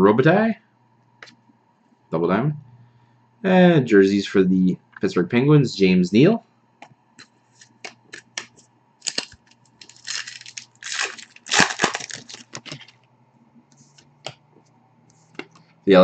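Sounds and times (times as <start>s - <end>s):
cards sliding and rustling: 7.6s - 13.0s.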